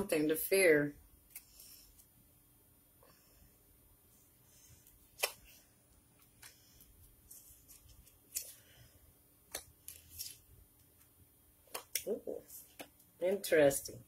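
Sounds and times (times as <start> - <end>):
cards snapping: 5.1 - 5.6, 7.6 - 8.6, 9.4 - 10.4, 11.6 - 12.9
cards sliding and rustling: 6.2 - 8.9, 9.5 - 10.5.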